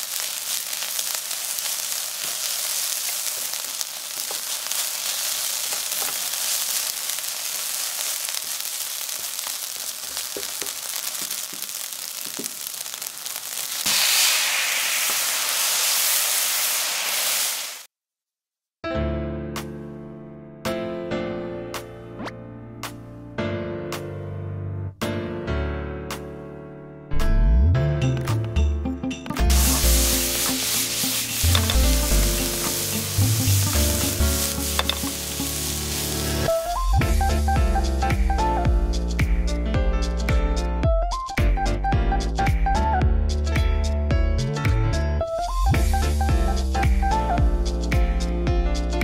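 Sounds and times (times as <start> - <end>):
rice frying in a pan: 0.0 - 17.9, 29.4 - 37.5, 45.7 - 47.6
sauce sizzling on hot pan: 0.0 - 17.9, 29.4 - 37.4.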